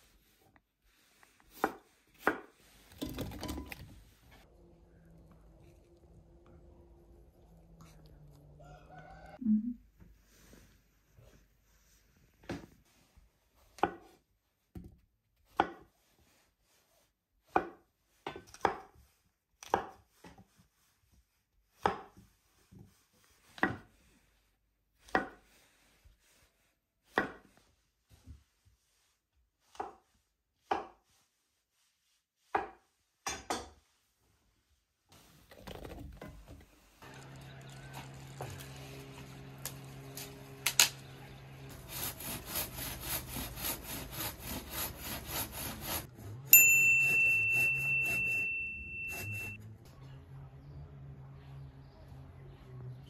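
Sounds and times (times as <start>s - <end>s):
knife chopping on wooden board: 1.5s - 2.5s, 15.5s - 15.9s, 17.5s - 19.0s, 19.6s - 20.4s, 21.8s - 22.2s, 25.1s - 25.4s, 27.1s - 27.5s.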